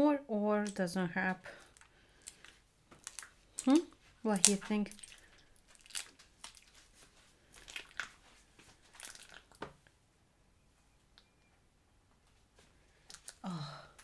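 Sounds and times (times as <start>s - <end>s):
slime crackling and popping: 1.6s - 6.8s, 7.5s - 8.2s, 8.9s - 9.7s, 13.1s - 13.4s.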